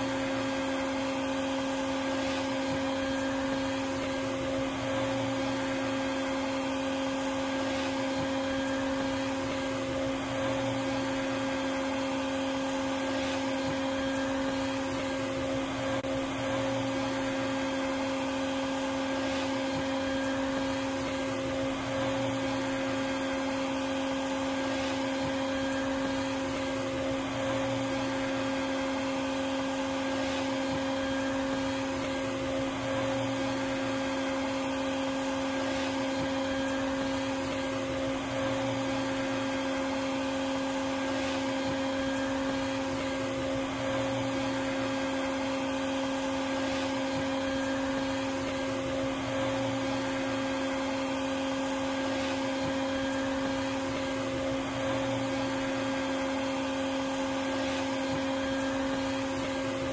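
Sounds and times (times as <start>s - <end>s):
vacuum cleaner running: 0.0s - 59.9s.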